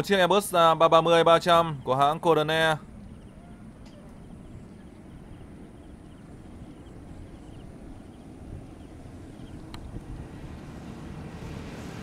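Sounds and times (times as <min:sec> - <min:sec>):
distant jet engines rumbling: 0:00.0 - 0:12.0
faint high chirp: 0:03.0 - 0:08.2.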